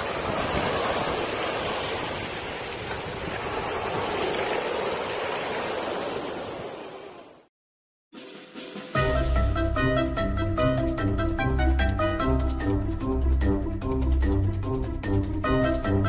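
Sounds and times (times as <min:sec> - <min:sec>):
wind on microphone: 0:00.0 - 0:04.8
ocean surf washing ashore: 0:00.0 - 0:07.5.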